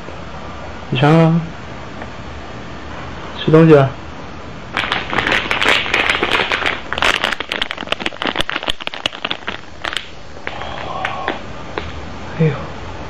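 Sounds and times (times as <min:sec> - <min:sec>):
plastic packaging crinkling: 0:04.7 - 0:11.4.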